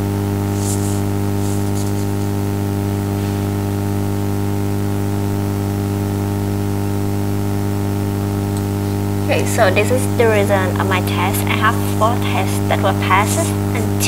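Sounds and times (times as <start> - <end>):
constant hiss: 0.0 - 3.9, 8.5 - 14.0
electrical hum: 0.0 - 14.0.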